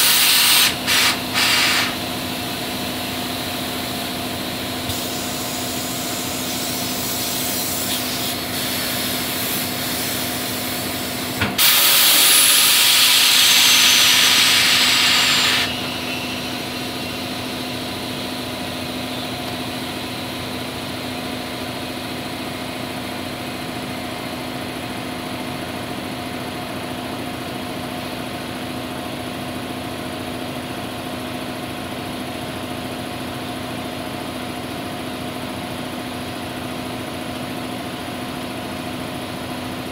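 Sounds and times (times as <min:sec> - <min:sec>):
compressed air hissing into tyre: 0:00.0 - 0:02.2, 0:04.8 - 0:19.2
steady mechanical hum: 0:00.0 - 0:39.9.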